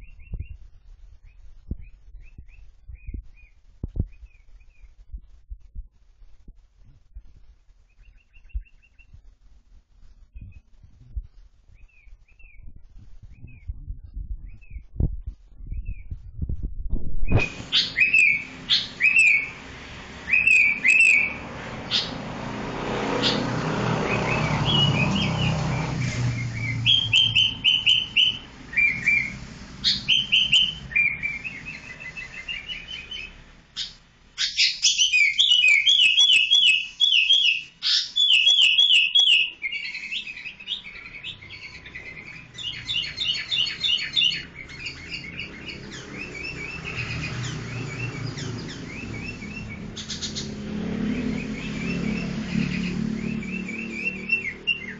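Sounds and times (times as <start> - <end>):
bird chirping high notes: 17.3 - 22.2, 23.2 - 54.9.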